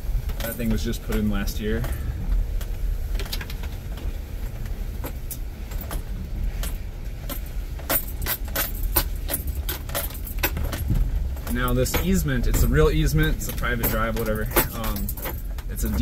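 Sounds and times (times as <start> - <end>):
vehicle low rumble: 0.0 - 16.0
keys jangling: 5.0 - 16.0.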